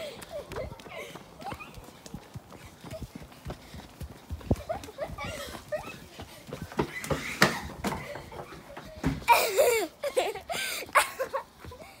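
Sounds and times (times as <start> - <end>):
quick running footsteps: 0.0 - 9.6, 10.4 - 12.0
child laughing and squealing: 4.5 - 6.2, 9.2 - 11.4.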